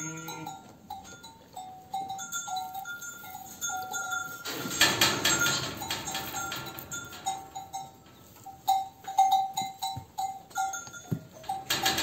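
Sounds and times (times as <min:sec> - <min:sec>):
harsh sheep bleat: 0:00.0 - 0:00.6.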